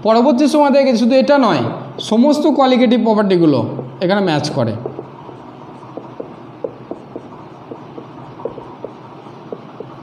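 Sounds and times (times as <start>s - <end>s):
low steady hum: 0.0s - 10.0s
marker squeaking on a whiteboard: 3.7s - 10.0s.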